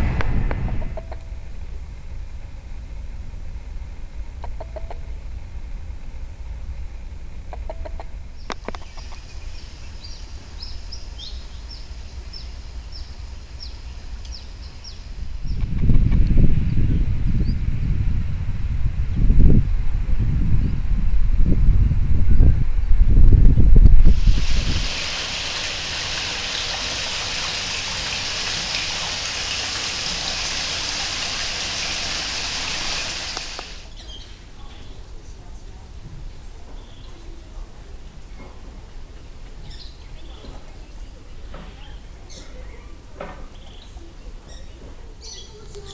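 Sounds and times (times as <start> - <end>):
low rumble: 0.0 - 4.3
water splashing over stone rim: 24.1 - 33.9.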